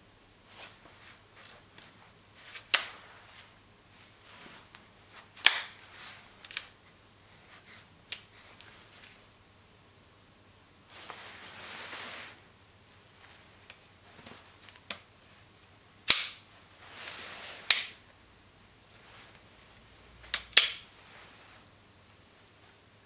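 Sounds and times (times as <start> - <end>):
soft rubbing: 0.4 - 9.3, 10.8 - 15.5, 16.5 - 17.7, 18.9 - 20.2, 20.9 - 22.8.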